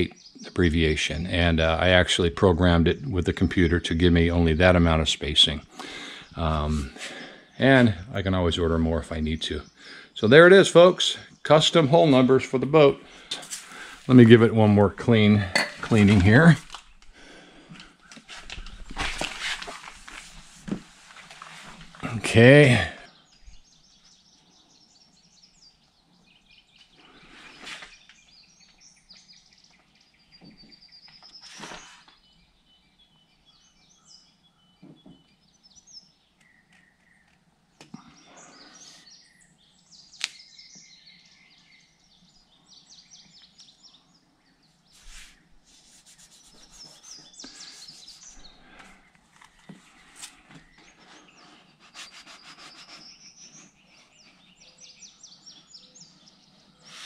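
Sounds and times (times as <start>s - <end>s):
faint birdsong: 0.0s - 57.0s
paper rustling: 15.8s - 17.0s, 18.1s - 22.0s, 31.3s - 32.2s, 45.0s - 50.6s
sharp click: 40.2s - 40.4s.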